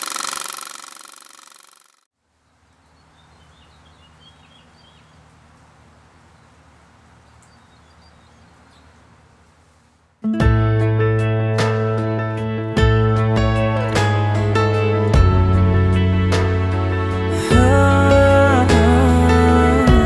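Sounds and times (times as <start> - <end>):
mechanical rattle: 0.0 - 2.0
soft bird chirps: 2.5 - 9.2
acoustic guitar music: 10.2 - 20.0.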